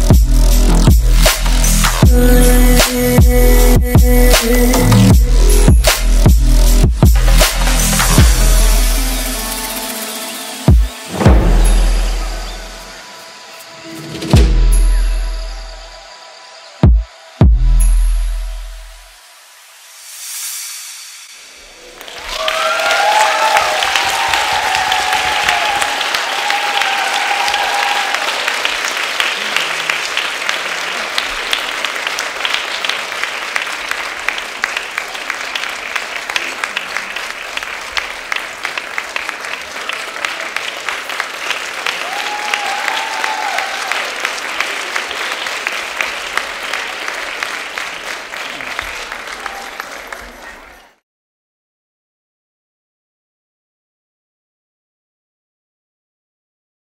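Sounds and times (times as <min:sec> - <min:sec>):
people cheering: 0:07.3 - 0:17.7, 0:21.6 - 0:51.0
audience applauding: 0:21.8 - 0:51.0.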